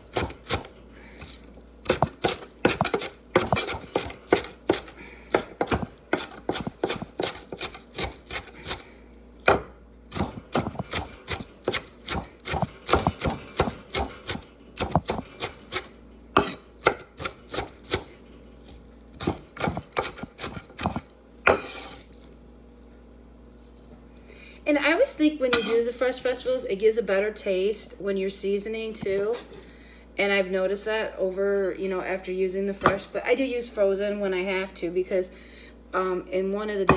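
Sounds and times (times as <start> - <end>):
knife chopping on wooden board: 1.9 - 8.8, 9.4 - 15.8, 19.2 - 22.0.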